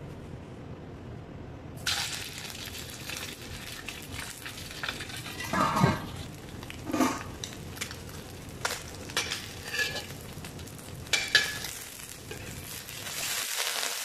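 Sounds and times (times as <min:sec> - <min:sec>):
fish sizzling in a wok: 0:01.8 - 0:14.0
metal tongs clinking on pan: 0:09.1 - 0:10.3, 0:11.1 - 0:12.6.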